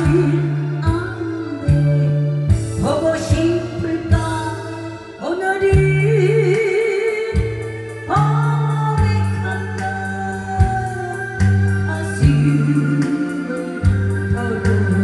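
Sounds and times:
backing track with beat and bass: 0:00.0 - 0:15.0
woman singing into microphone: 0:00.0 - 0:15.0.

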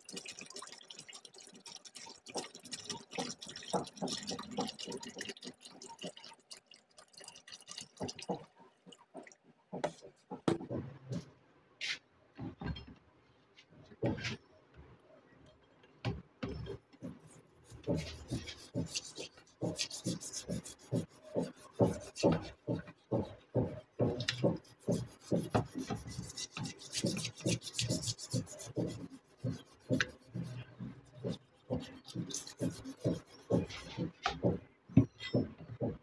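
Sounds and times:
metal tongs scrubbed in liquid: 0:17.0 - 0:22.8, 0:24.2 - 0:34.3.

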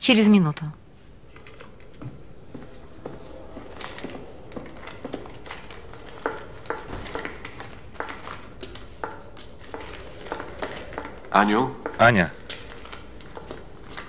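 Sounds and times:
footsteps on hard floor: 0:01.9 - 0:14.0.

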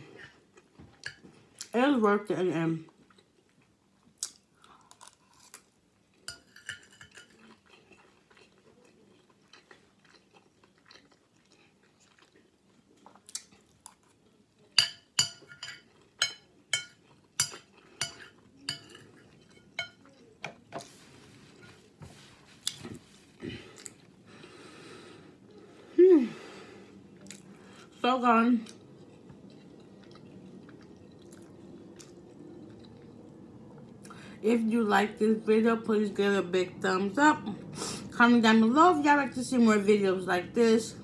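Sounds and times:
chewing with wet mouth clicks: 0:07.4 - 0:14.4
cutlery clinking on ceramic plate: 0:14.8 - 0:20.6.

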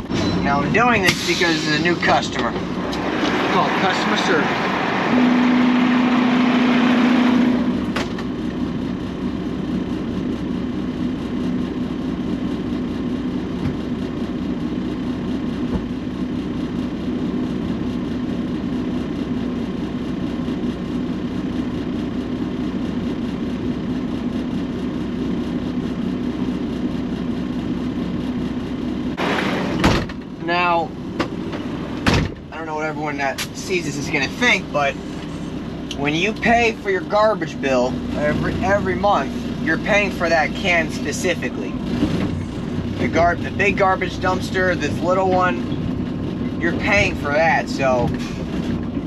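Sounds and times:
garbage truck engine idling: 0:34.0 - 0:47.2.

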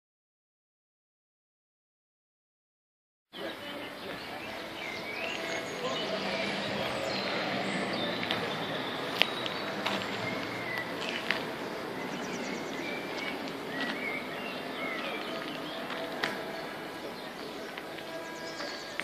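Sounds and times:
birds chirping: 0:03.3 - 0:19.0.

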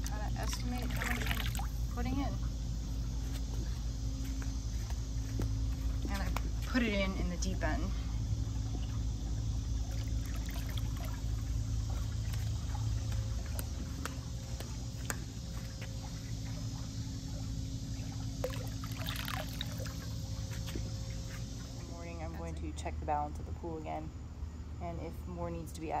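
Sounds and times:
steady low hum: 0:00.0 - 0:26.0
liquid trickling splash: 0:00.4 - 0:01.9, 0:09.8 - 0:13.6, 0:15.0 - 0:20.2.

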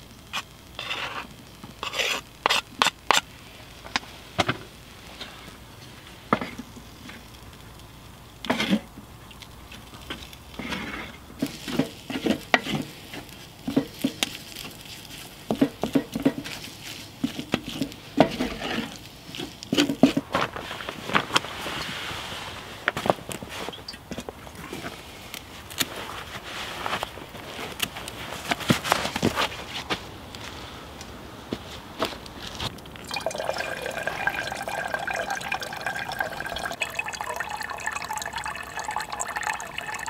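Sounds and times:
wooden spatula scraping a pan: 0:00.4 - 0:03.3, 0:10.1 - 0:22.4
knife scraping a cutting board: 0:00.8 - 0:03.2.

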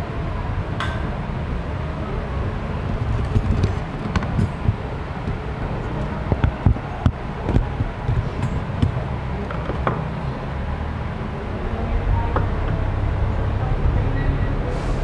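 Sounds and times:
steady low hum: 0:00.0 - 0:15.0
clicks and knocks of metal parts: 0:07.5 - 0:10.1.

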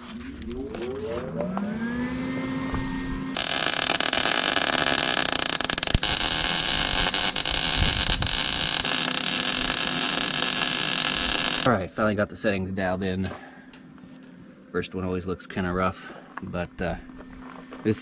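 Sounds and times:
steady whine: 0:00.0 - 0:18.0
welder arc crackling hiss: 0:03.4 - 0:11.7.

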